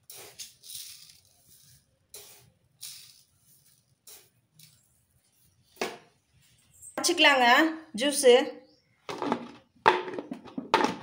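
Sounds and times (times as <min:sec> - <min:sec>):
sugar pouring hiss: 0:00.0 - 0:04.7.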